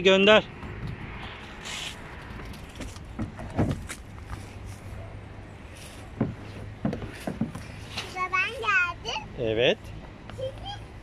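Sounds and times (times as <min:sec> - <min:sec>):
rubbing hiss on plastic slide: 0:01.6 - 0:02.0
body knocking against plastic: 0:02.8 - 0:04.0, 0:06.2 - 0:07.7.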